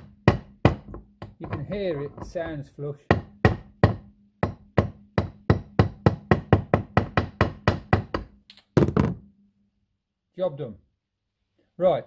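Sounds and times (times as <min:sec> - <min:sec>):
hammer tapping on metal bearing: 0:00.0 - 0:08.4.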